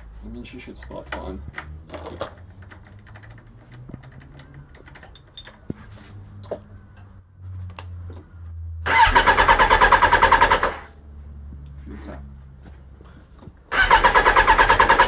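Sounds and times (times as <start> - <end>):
starter cranking engine: 8.8 - 10.9, 13.7 - 15.0.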